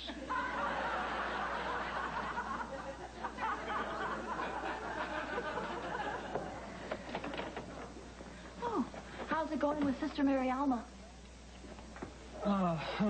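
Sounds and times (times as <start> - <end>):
studio audience laughing: 0.0 - 7.0.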